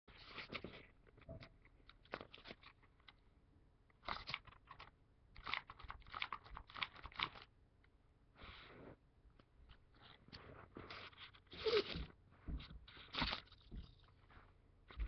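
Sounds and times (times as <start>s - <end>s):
paper crinkling: 0.1s - 3.2s, 4.0s - 7.5s, 12.9s - 14.5s.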